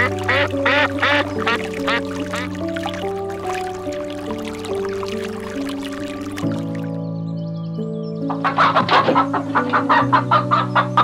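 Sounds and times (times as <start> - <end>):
background music with held notes: 0.0 - 11.0
pheasant clucking: 8.3 - 11.0.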